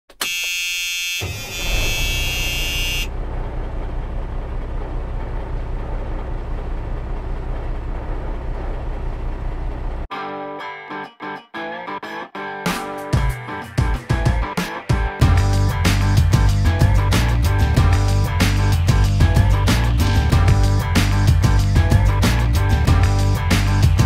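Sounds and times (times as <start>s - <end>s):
high-pitched tone: 1.2s - 3.1s
excavator diesel engine running: 1.3s - 10.1s, 15.6s - 24.0s
guitar music: 10.1s - 24.0s.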